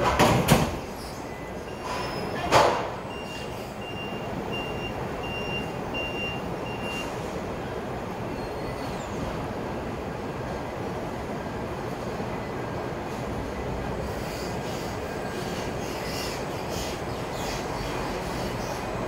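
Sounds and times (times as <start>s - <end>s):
forklift reversing alarm beeping: 1.2s - 2.4s, 3.0s - 7.2s.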